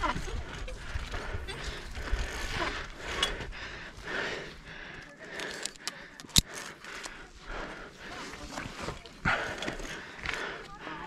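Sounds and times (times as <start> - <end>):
small clicks: 5.4 - 7.1.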